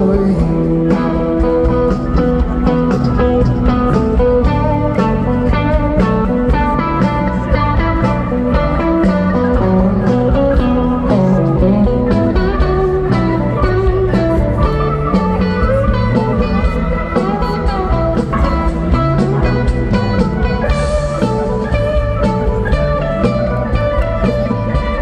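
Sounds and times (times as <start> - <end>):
live rock band playing: 0.0 - 25.0.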